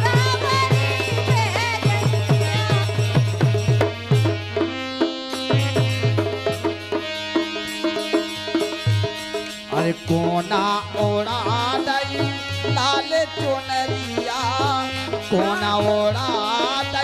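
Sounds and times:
hand drum beat: 0.0 - 4.7
harmonium: 0.0 - 17.0
person singing ornamented melody: 9.7 - 17.0.

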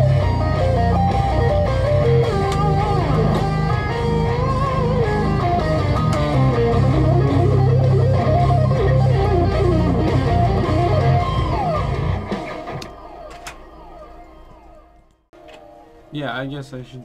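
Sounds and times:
electric guitar solo: 0.0 - 13.6.

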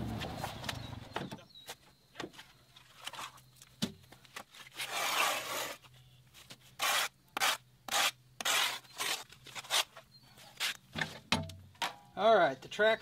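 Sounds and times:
shovel scraping mud: 4.5 - 5.8, 6.7 - 10.8.

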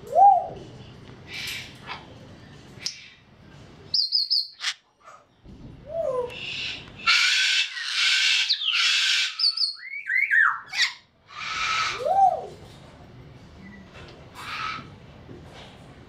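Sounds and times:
parrot whistled calls: 4.0 - 4.7, 6.4 - 12.4
parrot screeching: 6.5 - 12.2, 14.4 - 14.9.

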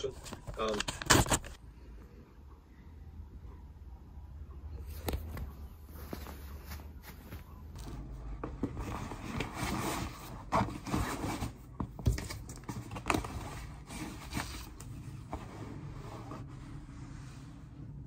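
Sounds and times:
fabric rustling and scraping: 4.8 - 11.7, 12.7 - 18.0.

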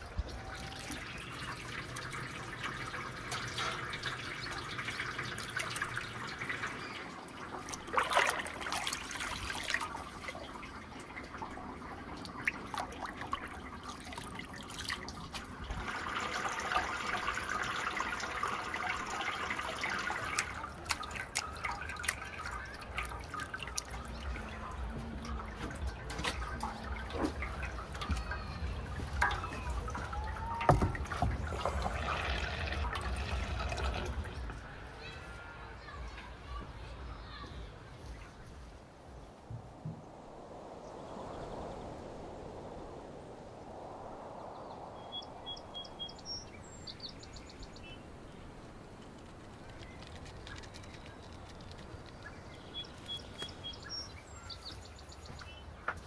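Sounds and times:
liquid trickling and dripping: 0.0 - 35.1, 44.6 - 56.0.

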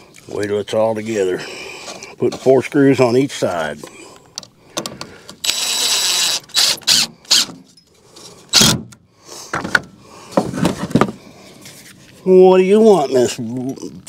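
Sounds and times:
impact driver driving screws: 5.4 - 7.6, 8.5 - 9.0.

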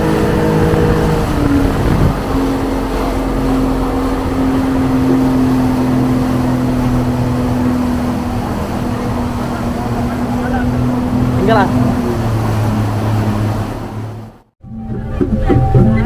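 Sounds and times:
boat engine humming: 0.0 - 16.0.

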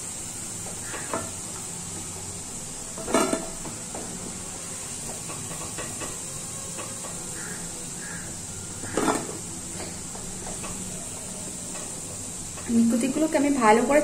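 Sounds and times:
oil sizzling: 0.0 - 14.0
spatula clattering against pan: 5.1 - 7.4.

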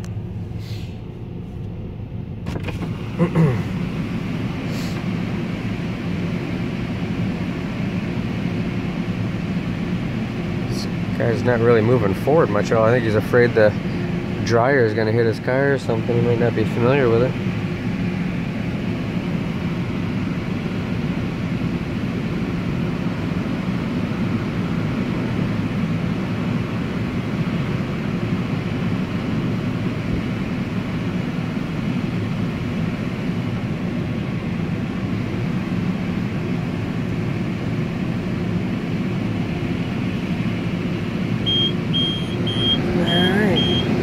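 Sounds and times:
car engine idling rumble: 0.0 - 44.0
car wash dryer blowers: 0.0 - 44.0
short high beeps: 41.5 - 44.0.

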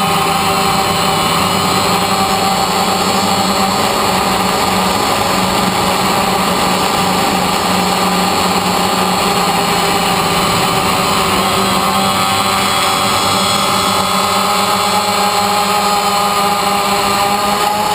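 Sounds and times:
drone propellers buzzing: 0.0 - 17.9.

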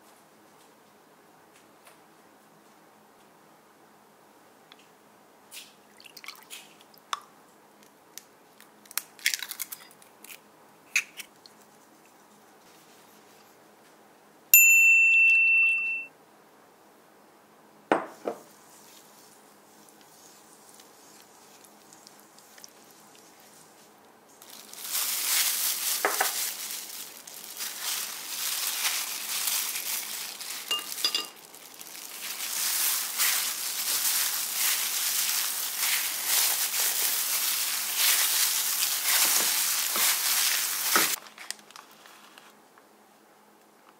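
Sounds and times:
high beep: 15.2 - 16.1
knock: 17.9 - 18.4
plastic glove crinkling: 18.5 - 42.6.

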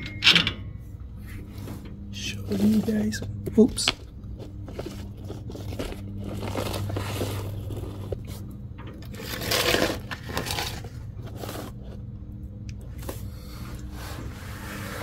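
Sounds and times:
steady low hum: 0.0 - 15.0
cable scraping and rubbing: 4.3 - 12.1, 13.0 - 15.0.

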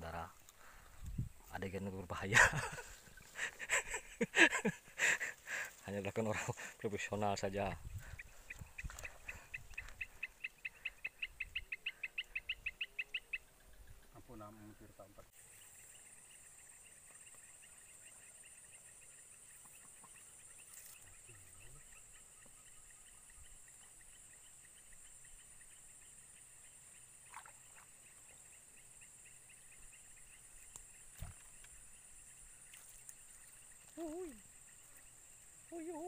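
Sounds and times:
faint clicks and short calls: 30.1 - 32.0
chorus of small calling animals: 32.6 - 36.0.

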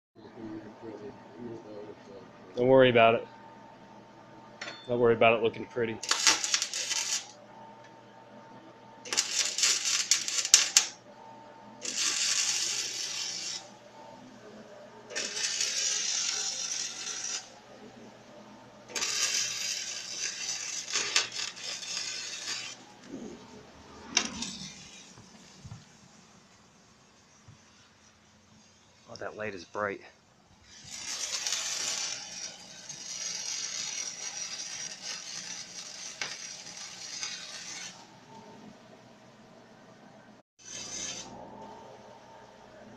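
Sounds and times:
arc welding hiss: 6.0 - 7.3, 9.1 - 10.9, 11.8 - 13.7, 15.1 - 17.5, 18.9 - 22.8, 30.7 - 38.0.

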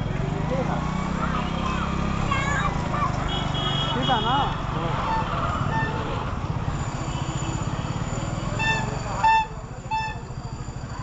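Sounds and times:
car horn honks: 3.3 - 4.5.

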